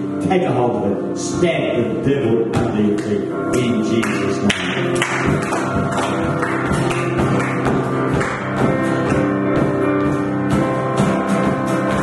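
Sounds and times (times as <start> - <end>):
electric guitar playing: 4.0 - 12.0
steady drum beat: 4.7 - 12.0.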